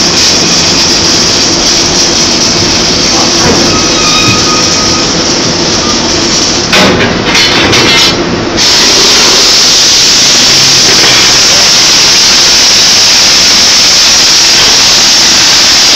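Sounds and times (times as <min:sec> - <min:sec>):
loud even hiss: 0:00.0 - 0:06.7, 0:08.5 - 0:15.9
welding machine noise: 0:00.0 - 0:15.9
knocks and clatters: 0:06.7 - 0:08.2.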